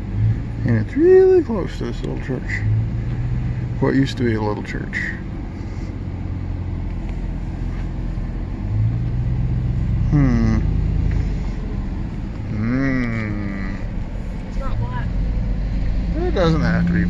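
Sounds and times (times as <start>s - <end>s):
pickup engine running: 0.0s - 17.0s.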